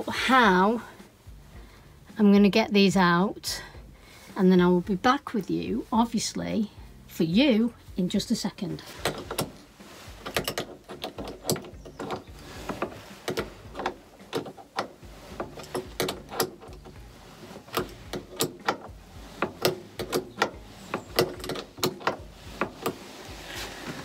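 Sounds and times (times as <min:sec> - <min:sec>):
hand ratchet clicking: 0:09.0 - 0:09.6, 0:10.2 - 0:23.1.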